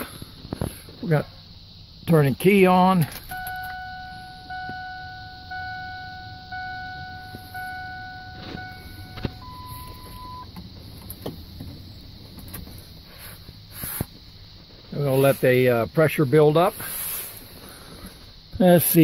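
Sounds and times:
dashboard warning chime dings: 0:03.3 - 0:10.5
steady high beep: 0:03.3 - 0:10.5.

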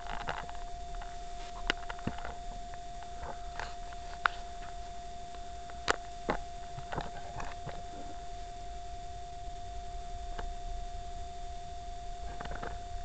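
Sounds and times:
faint high hum: 0:00.0 - 0:13.0.

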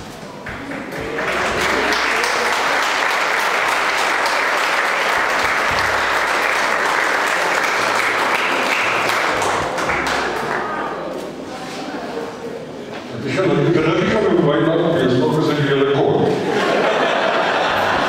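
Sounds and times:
crowd applauding: 0:00.4 - 0:10.8.

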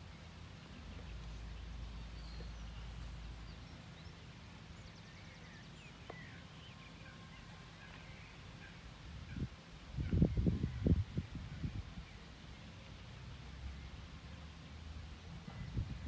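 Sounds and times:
wind rumble on microphone: 0:09.0 - 0:12.3, 0:15.4 - 0:16.0.

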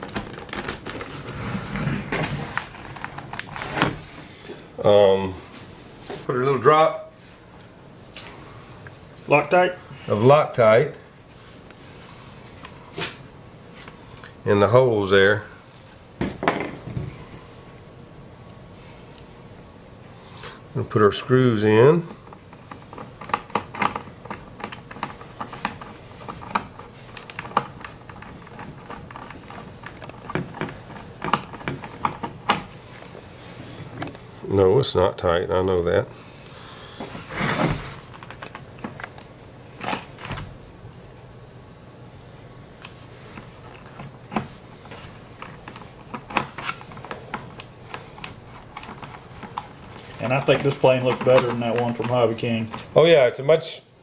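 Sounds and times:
handling rubs: 0:42.8 - 0:53.0.

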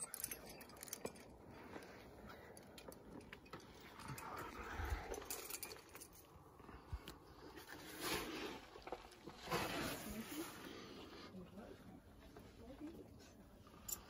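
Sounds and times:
metallic clinks of climbing gear: 0:00.0 - 0:07.9, 0:13.2 - 0:14.0.

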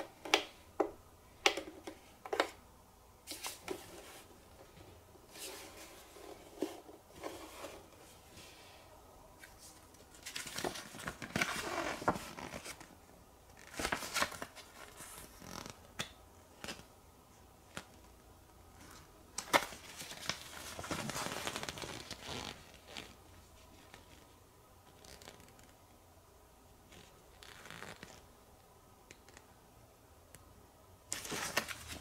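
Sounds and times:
booklet pages rustling: 0:03.3 - 0:08.1, 0:09.4 - 0:12.9, 0:13.5 - 0:15.8, 0:18.8 - 0:24.3, 0:31.1 - 0:32.0.

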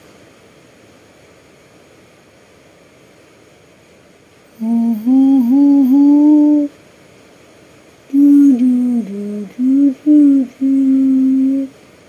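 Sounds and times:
person humming a lullaby: 0:04.6 - 0:06.8, 0:08.1 - 0:11.8.

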